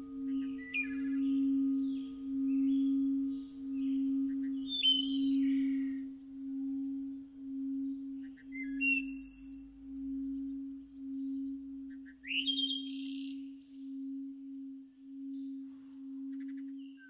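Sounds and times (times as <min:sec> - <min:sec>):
birds chirping: 0:00.0 - 0:11.5
low humming tone: 0:00.0 - 0:17.0.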